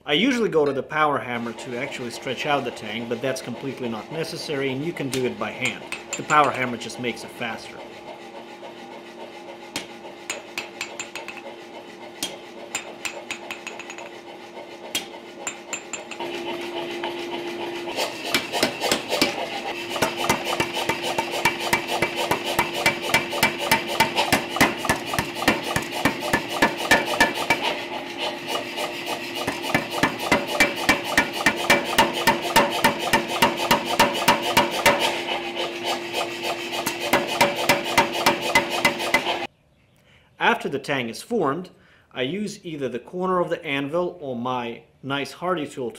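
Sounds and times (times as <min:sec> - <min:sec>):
power hammer blows on hot steel: 0:01.4 - 0:07.9, 0:08.5 - 0:39.5
motor hum: 0:05.8 - 0:39.5.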